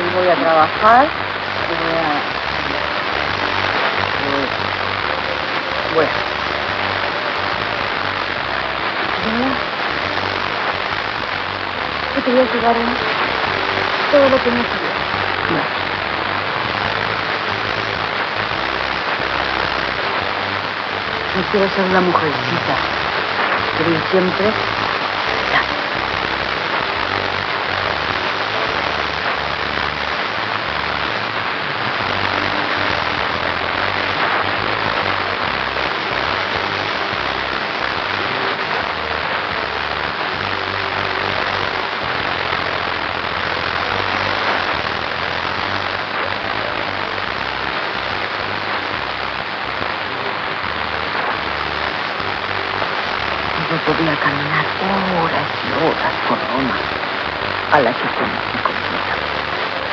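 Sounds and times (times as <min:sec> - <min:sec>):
fountain water splashing: 0:12.2 - 0:15.8, 0:20.9 - 0:24.7, 0:50.7 - 0:56.9.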